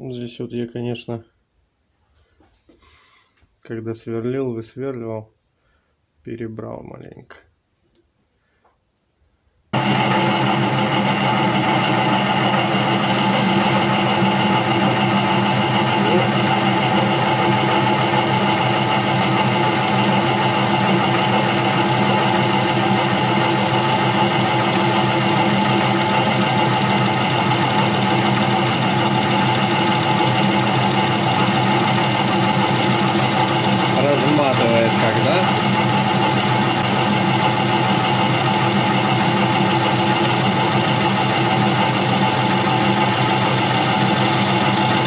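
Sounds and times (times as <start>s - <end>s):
lathe motor humming: 9.8s - 45.0s.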